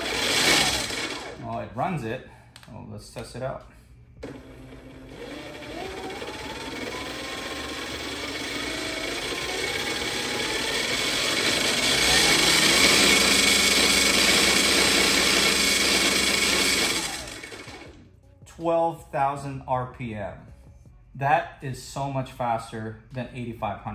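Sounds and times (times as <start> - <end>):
electric outboard motor whining: 0.0 - 1.4, 4.2 - 18.0.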